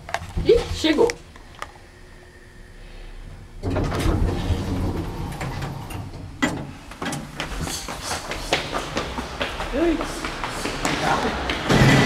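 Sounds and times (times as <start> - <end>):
elevator door sliding open: 3.6 - 7.6.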